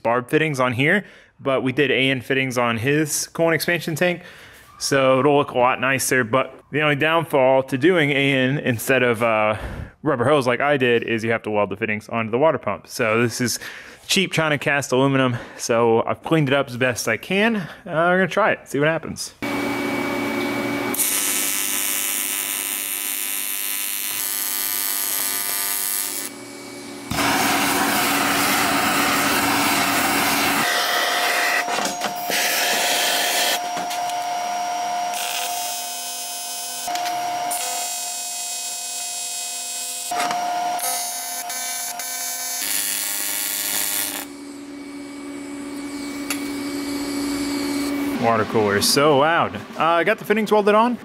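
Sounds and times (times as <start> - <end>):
welder arc buzzing and hissing: 19.4 - 31.4, 32.2 - 48.2.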